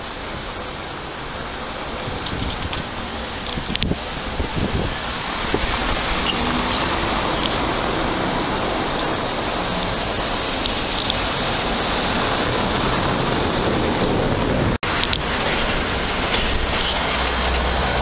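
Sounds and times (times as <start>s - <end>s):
outdoor street ambience: 0.0s - 18.0s.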